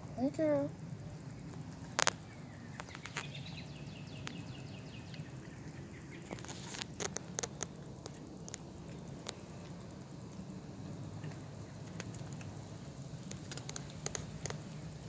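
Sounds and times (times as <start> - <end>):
kitten crunching dry kibble: 1.4 - 3.5, 5.8 - 15.0.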